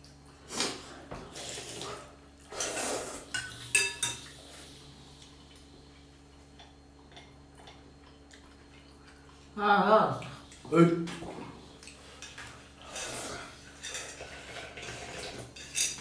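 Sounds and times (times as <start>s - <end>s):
utensils clinking on ceramic bowls: 3.3s - 4.3s, 15.5s - 16.0s.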